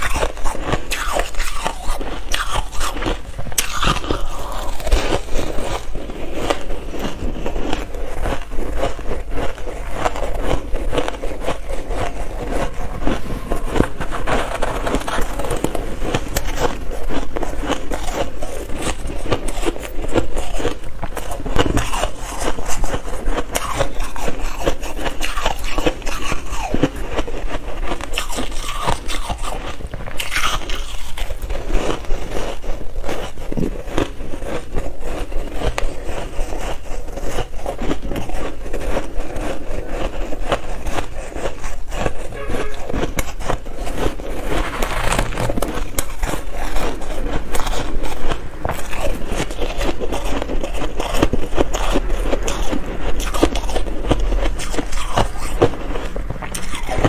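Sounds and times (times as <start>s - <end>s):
fingers scraping soft ice: 0.0s - 57.0s
shaved ice crunching: 0.0s - 57.0s.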